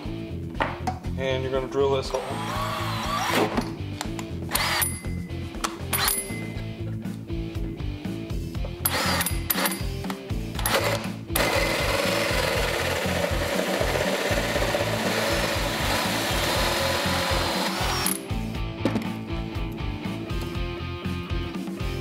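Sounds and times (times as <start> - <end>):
rock music: 0.0 - 22.0
drill cutting through metal: 2.2 - 3.5, 4.5 - 5.0, 8.8 - 9.8, 10.6 - 18.2.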